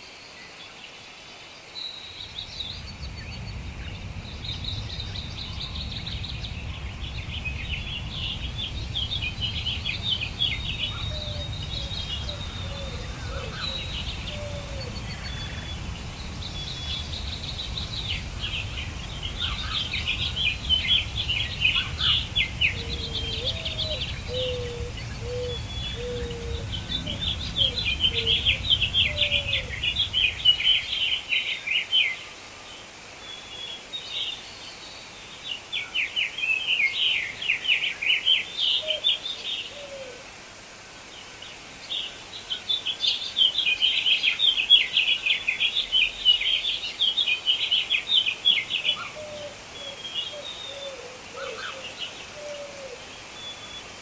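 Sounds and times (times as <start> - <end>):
songbirds chirping trills: 0.8 - 40.2
low rumble: 2.2 - 31.2.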